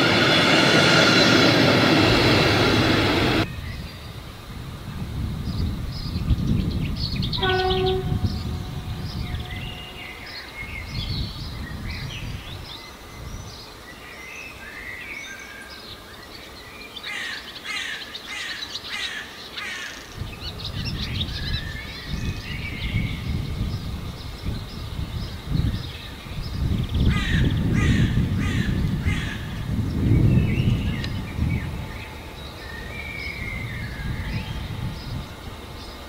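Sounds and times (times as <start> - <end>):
low train rumble: 0.0 - 13.9, 20.1 - 36.0
short horn-like tone: 7.4 - 10.2.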